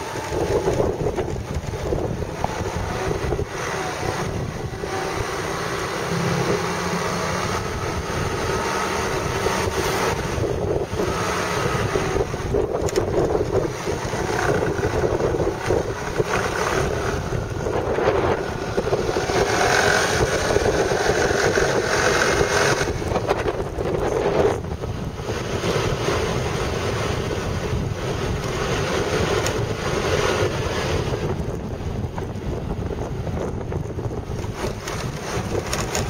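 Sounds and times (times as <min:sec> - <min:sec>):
scooter engine running: 0:00.0 - 0:36.0
wind buffeting microphone: 0:00.0 - 0:36.0.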